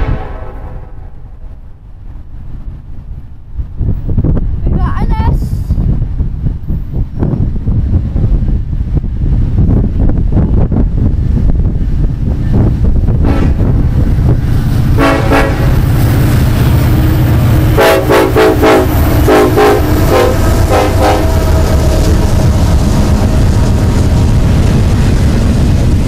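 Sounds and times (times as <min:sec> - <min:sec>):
locomotive air horn: 0:00.0 - 0:01.2, 0:13.2 - 0:13.7, 0:15.0 - 0:15.9, 0:17.7 - 0:22.3
train engine and cars rumbling: 0:00.0 - 0:26.0.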